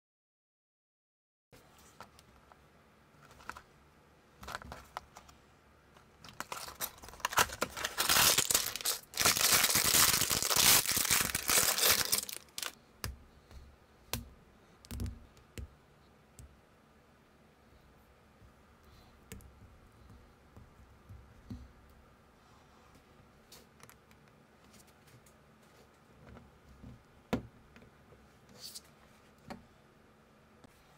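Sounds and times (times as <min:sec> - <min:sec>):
plastic bag crinkling and tearing: 0:06.2 - 0:12.8.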